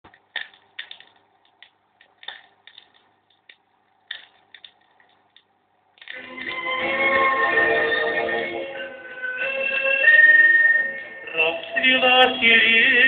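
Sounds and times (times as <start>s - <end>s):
vinyl crackles and pops: 0.0s - 8.1s
faint steady hum: 0.0s - 13.0s.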